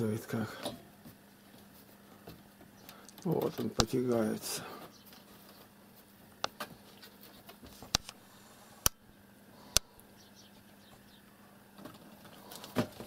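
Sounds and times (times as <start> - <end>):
faint steady low hum: 0.0 - 13.0
loud sharp clicks: 8.8 - 9.0.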